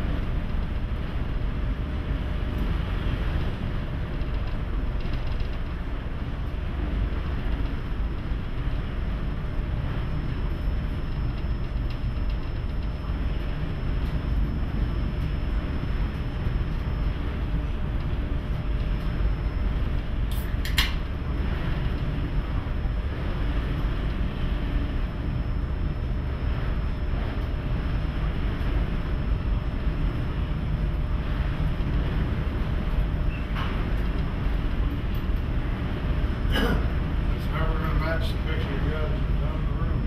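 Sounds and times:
ship engine and hull rumble: 0:00.0 - 0:40.0
sharp clicking rattles: 0:04.2 - 0:05.8.

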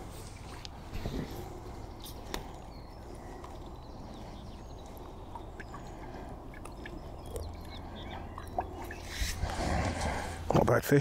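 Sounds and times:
faint bird chirps: 0:01.8 - 0:09.2.

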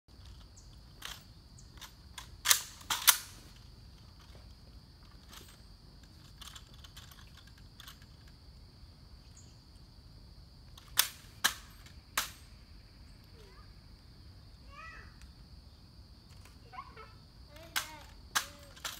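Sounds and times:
faint rifle clicks: 0:00.2 - 0:04.3
rifle snaps: 0:01.8 - 0:03.4, 0:10.8 - 0:12.4, 0:17.7 - 0:18.9.

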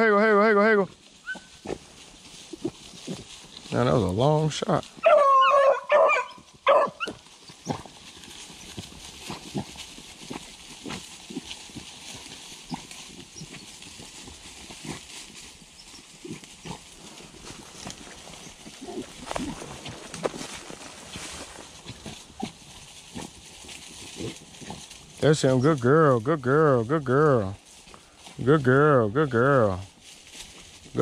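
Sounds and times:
crunching in dry leaves: 0:00.0 - 0:31.0
dog crying high and wavering: 0:05.0 - 0:07.7.

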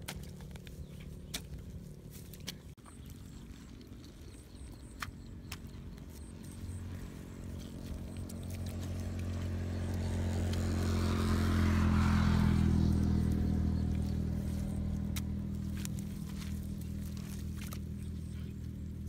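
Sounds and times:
hands digging in wet soil: 0:00.0 - 0:19.0
vehicle engine passing by: 0:05.7 - 0:19.0.

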